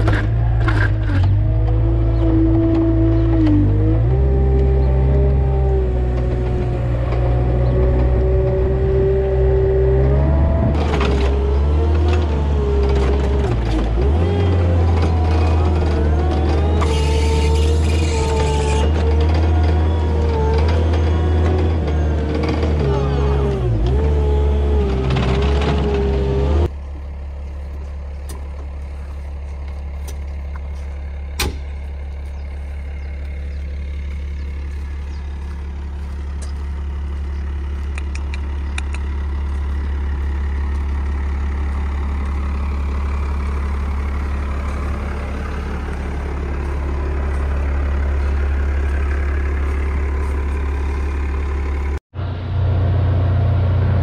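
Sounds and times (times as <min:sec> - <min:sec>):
farm vehicle engine: 0:00.0 - 0:54.0
low diesel engine hum: 0:00.0 - 0:54.0
sharp click: 0:37.8 - 0:39.1.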